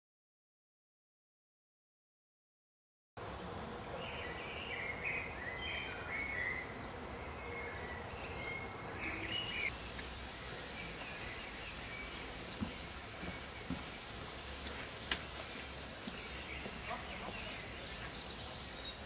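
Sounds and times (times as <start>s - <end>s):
outdoor background noise: 3.2s - 19.0s
small birds chirping: 3.2s - 19.0s.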